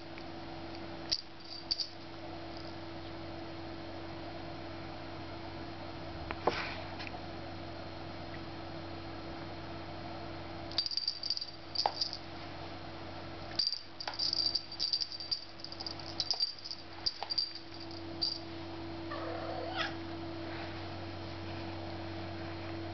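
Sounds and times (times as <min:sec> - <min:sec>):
jingle bell toy tinkling: 0:01.4 - 0:01.9, 0:10.7 - 0:12.2, 0:13.6 - 0:18.4
low hum: 0:07.1 - 0:22.9
kitten meowing: 0:19.1 - 0:20.0.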